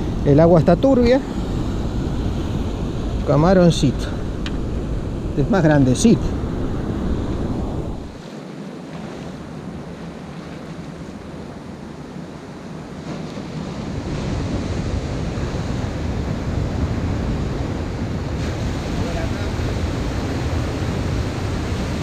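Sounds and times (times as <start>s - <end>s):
wind buffeting microphone: 0.0s - 8.2s, 9.1s - 22.0s
surf washing against stone jetty: 0.0s - 22.0s.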